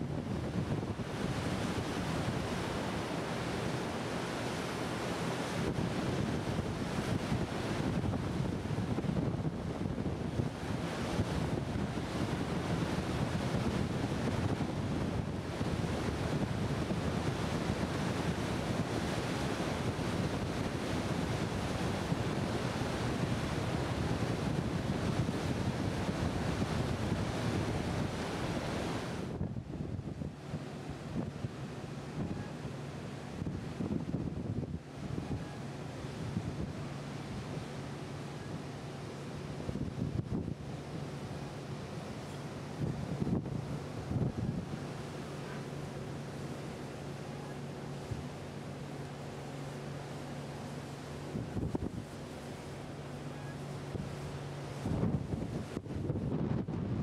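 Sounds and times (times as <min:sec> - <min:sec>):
water washing along hull: 0:00.0 - 0:57.0
wind buffeting microphone: 0:05.6 - 0:32.6, 0:33.3 - 0:35.6, 0:39.6 - 0:41.0, 0:42.6 - 0:45.0, 0:51.2 - 0:52.2, 0:53.8 - 0:57.0.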